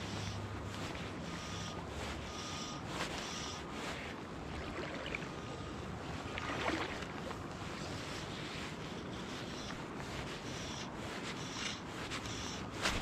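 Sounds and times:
river water flowing: 3.6 - 12.2.

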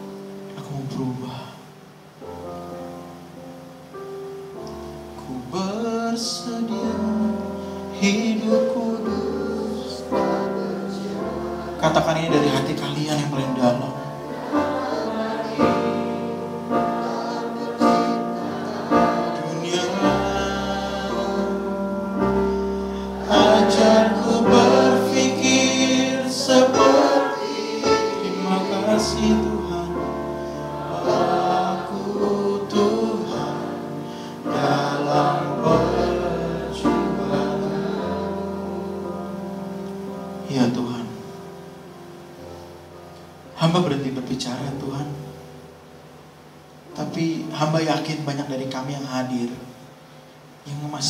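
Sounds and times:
congregation singing a worship song: 5.2 - 41.2.

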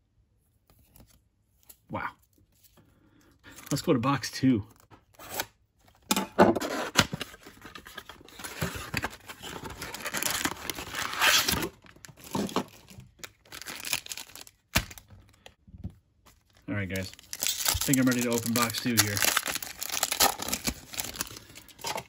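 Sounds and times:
tearing and rustling: 17.0 - 22.0.

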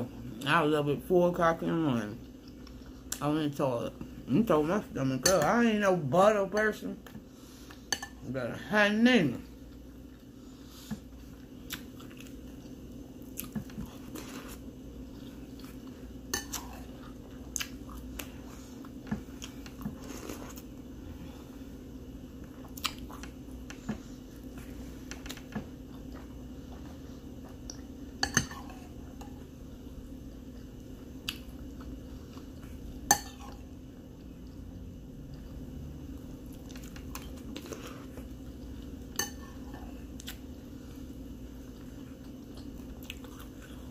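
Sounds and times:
chewing cereal: 11.1 - 20.8, 39.6 - 43.9.

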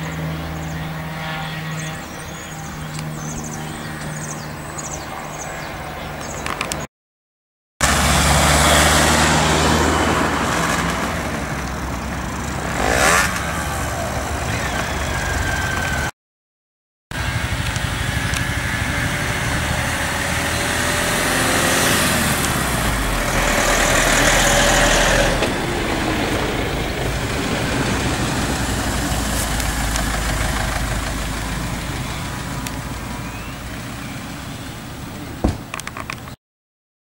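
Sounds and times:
road traffic: 0.0 - 6.9, 7.8 - 16.1, 17.1 - 36.4
vehicle passing close: 7.8 - 16.1, 17.2 - 35.8.

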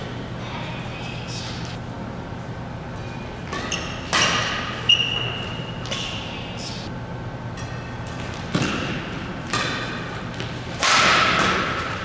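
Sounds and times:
rackets hitting shuttlecock: 3.4 - 6.2, 7.5 - 12.0.

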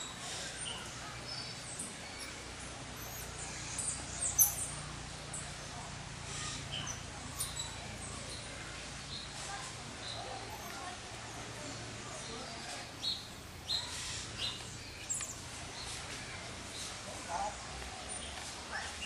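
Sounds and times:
monkeys chirping and squeaking: 3.0 - 4.8, 6.3 - 7.8.

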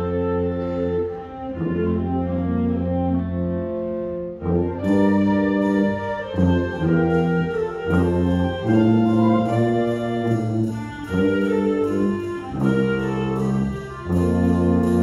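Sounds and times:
concert band playing: 3.6 - 15.0.

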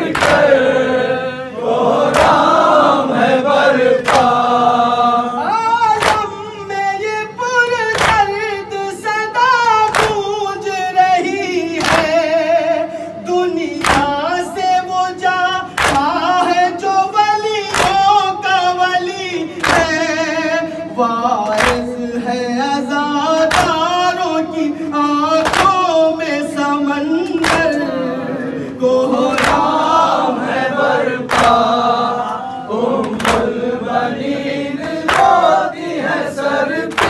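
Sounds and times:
mourners slapping chests: 0.0 - 7.0, 7.8 - 8.6, 9.4 - 12.8, 13.6 - 18.6, 19.5 - 20.4, 21.4 - 22.0, 23.4 - 24.4, 25.0 - 26.4, 27.1 - 28.0, 28.6 - 37.0
man singing a lament: 2.2 - 37.0.

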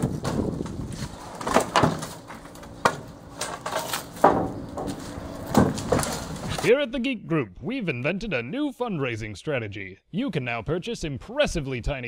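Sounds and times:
wooden boards clattering: 0.0 - 6.7.

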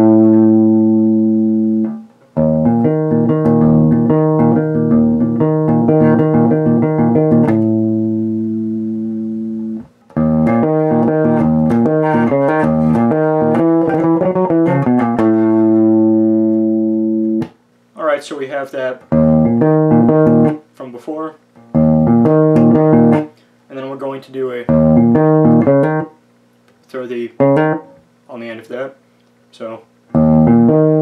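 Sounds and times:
electric bass played fingerstyle: 0.0 - 17.6, 19.0 - 20.6, 21.6 - 23.4, 24.7 - 26.2, 27.2 - 28.1, 30.1 - 31.0.

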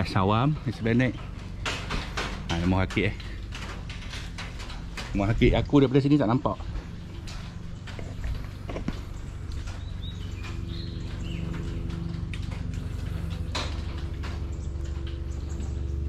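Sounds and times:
motor humming: 0.0 - 16.0.

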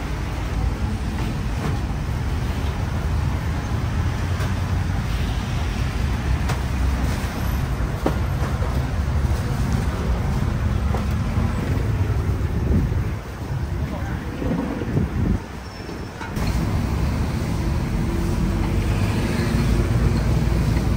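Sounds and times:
steady low rumble: 9.2 - 15.4.

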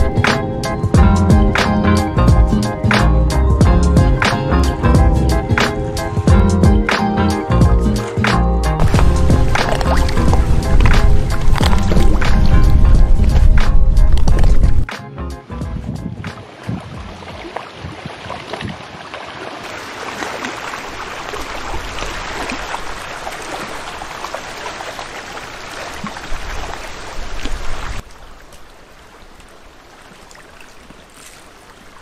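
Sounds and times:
waves lapping on stony shore: 8.8 - 14.8, 16.3 - 32.0.

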